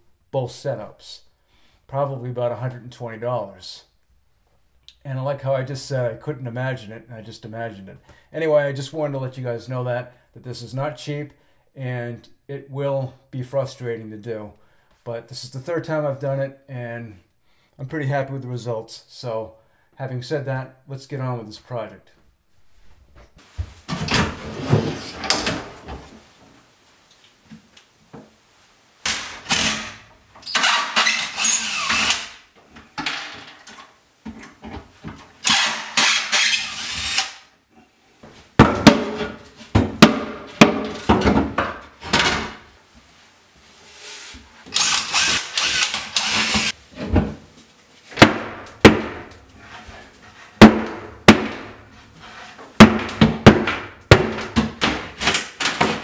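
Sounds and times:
cordless drill bursts: 0:30.5 - 0:32.4, 0:35.4 - 0:37.4, 0:44.7 - 0:46.7
knocks and clatter of boards: 0:38.6 - 0:42.6, 0:48.1 - 0:49.4, 0:50.6 - 0:51.8, 0:52.7 - 0:56.0.

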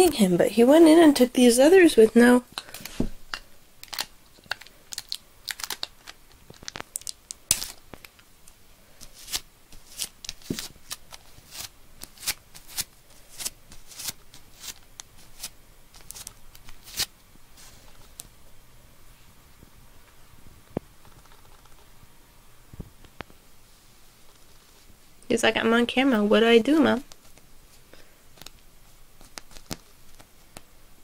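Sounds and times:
sticky tape crackling: 0:02.6 - 0:17.1, 0:28.3 - 0:30.7.

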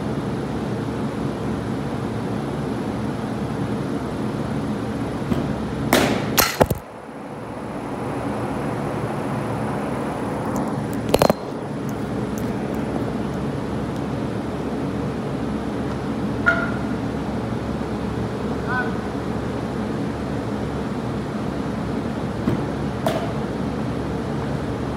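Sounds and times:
steady mechanical hum: 0:00.0 - 0:24.9
sharp knocks of baseball hits: 0:05.2 - 0:06.9, 0:22.4 - 0:23.5.

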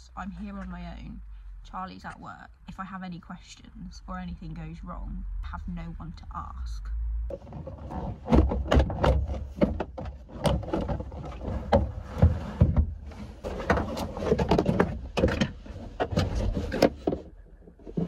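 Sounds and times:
car parts knocking and rattling: 0:07.3 - 0:18.0.

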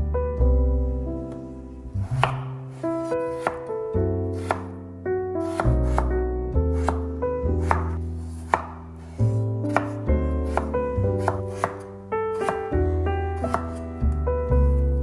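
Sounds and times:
background music: 0:00.0 - 0:15.0
knife chopping on wooden board: 0:02.1 - 0:03.7, 0:04.4 - 0:04.7, 0:05.5 - 0:06.1, 0:06.8 - 0:08.8, 0:09.6 - 0:11.8, 0:12.4 - 0:12.8, 0:13.4 - 0:13.8.

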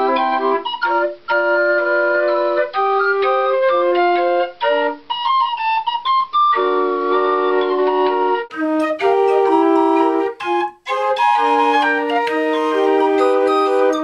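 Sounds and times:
pipe organ playing chords and melody: 0:06.5 - 0:14.0.

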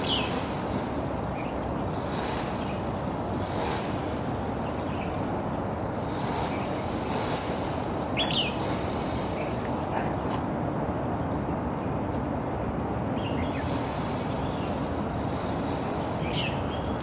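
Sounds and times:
bird chirp: 0:00.0 - 0:00.5, 0:08.1 - 0:09.6, 0:16.1 - 0:17.0
distant traffic rumble: 0:00.0 - 0:17.0.

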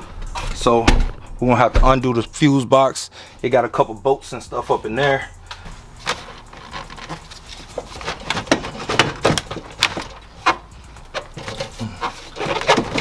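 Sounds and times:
metal tools clanking: 0:06.0 - 0:13.0.

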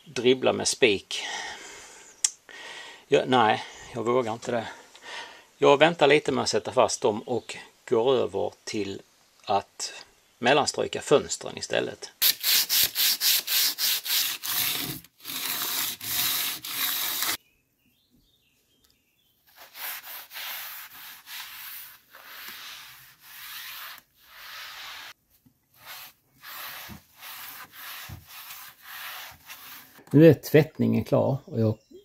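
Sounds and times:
sponge scrubbing window sashes: 0:12.2 - 0:17.4, 0:19.5 - 0:25.2, 0:25.8 - 0:30.0.

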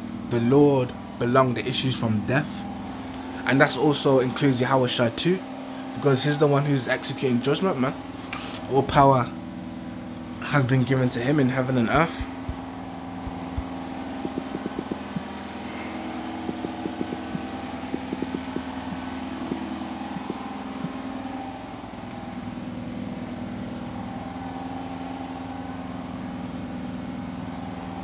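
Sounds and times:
washing machine humming: 0:00.0 - 0:28.0
fingers tapping touchscreen: 0:12.4 - 0:21.1.

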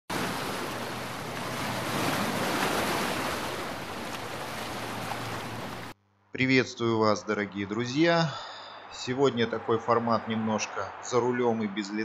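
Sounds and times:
waves washing onto shore: 0:00.1 - 0:06.0.

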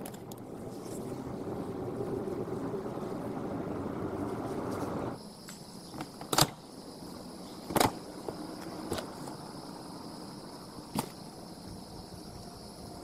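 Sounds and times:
steady rushing noise: 0:00.0 - 0:05.2
high insect whine: 0:00.0 - 0:13.0.

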